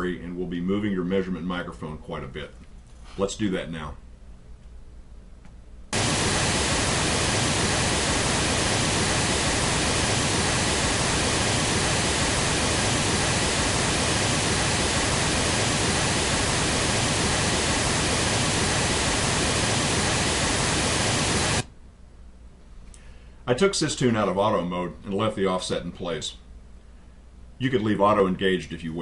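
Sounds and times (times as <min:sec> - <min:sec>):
pink noise signal: 0:05.9 - 0:21.7.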